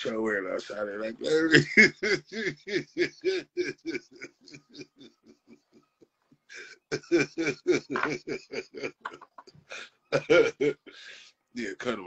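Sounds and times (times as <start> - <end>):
man laughing hard: 1.5 - 5.8, 7.0 - 9.3, 10.2 - 10.9.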